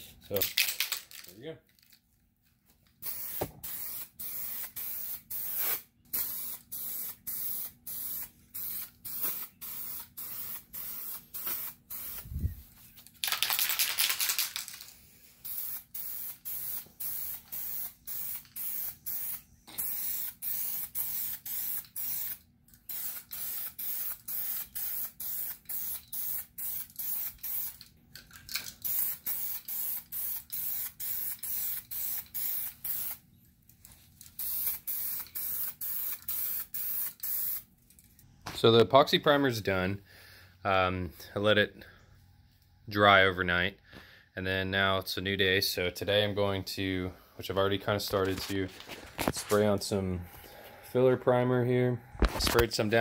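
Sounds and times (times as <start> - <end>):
aerosol spray can hissing: 3.0 - 12.6, 15.4 - 27.8, 28.8 - 33.2, 34.4 - 37.7.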